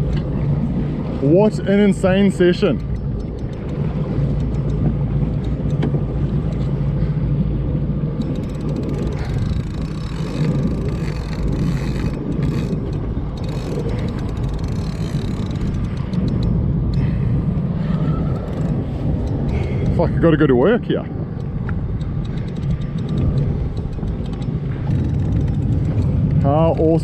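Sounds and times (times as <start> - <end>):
wind and sea rumble: 0.0 - 27.0.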